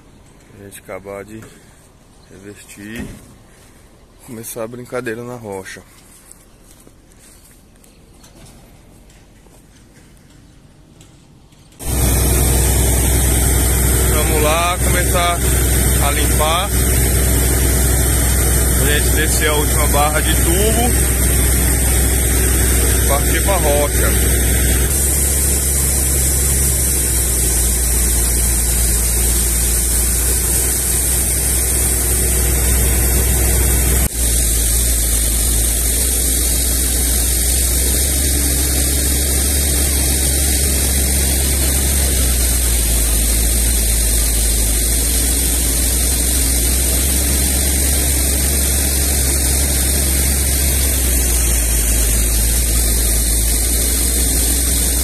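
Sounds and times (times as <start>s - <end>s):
drilling rig droning: 11.8s - 55.0s
water spraying: 11.8s - 55.0s.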